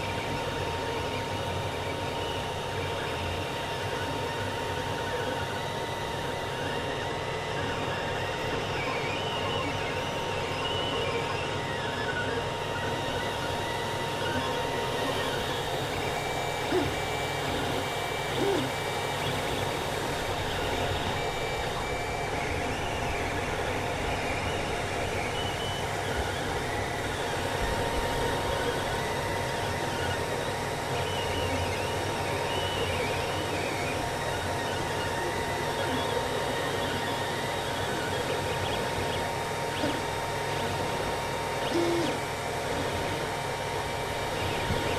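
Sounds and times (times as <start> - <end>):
fans whirring: 0.0 - 44.9
stepper motors whining tones: 0.0 - 44.9.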